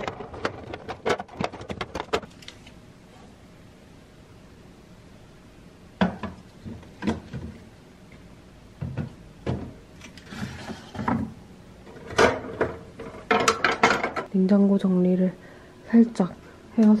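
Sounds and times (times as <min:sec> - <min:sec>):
containers knocking on fridge shelves: 0:06.0 - 0:07.6, 0:08.8 - 0:09.8.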